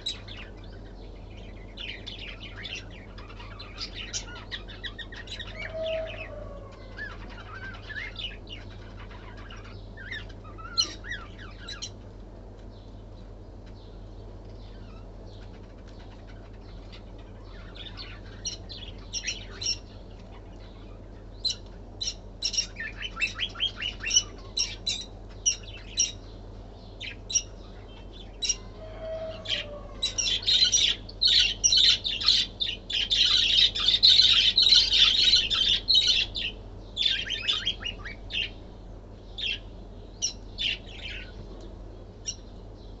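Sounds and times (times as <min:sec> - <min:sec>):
lovebirds chirping: 0:00.0 - 0:43.0
steady low hum: 0:00.0 - 0:43.0.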